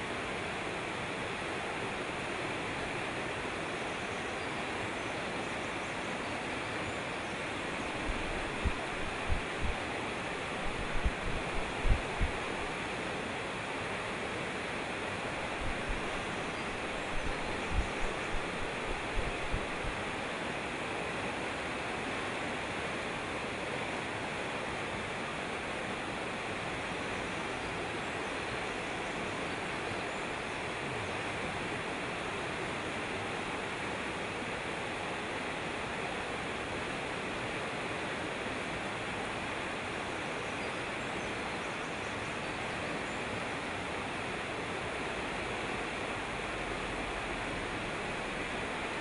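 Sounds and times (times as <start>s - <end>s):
stream rushing over rocks: 0.0s - 49.0s
short low thumps: 8.1s - 9.8s, 10.6s - 12.7s, 17.0s - 20.0s.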